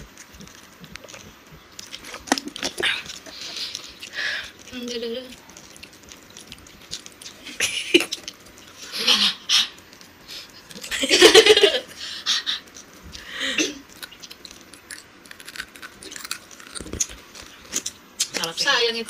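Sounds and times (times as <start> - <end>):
women laughing: 10.9 - 11.9.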